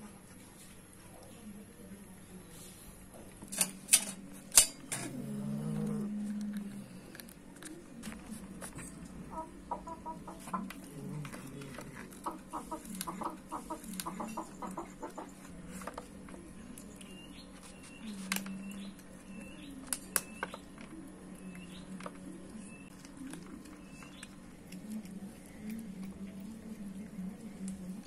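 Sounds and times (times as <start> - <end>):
cats chewing meat: 4.2 - 28.0
low clucking calls: 9.2 - 10.8, 12.1 - 15.4.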